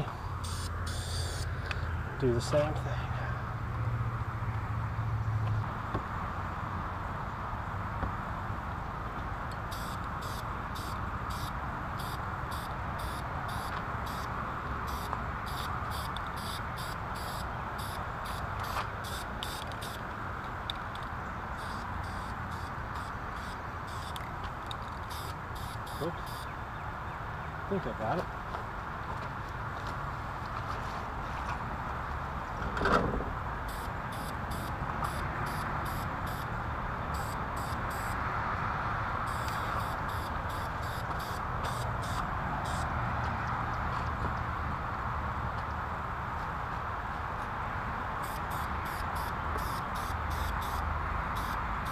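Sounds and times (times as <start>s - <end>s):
spray paint can hissing: 0.4s - 1.4s, 9.7s - 14.3s, 14.9s - 20.0s, 25.0s - 26.4s, 33.7s - 36.5s, 37.2s - 38.2s, 39.3s - 42.8s, 48.2s - 50.8s, 51.4s - 51.9s.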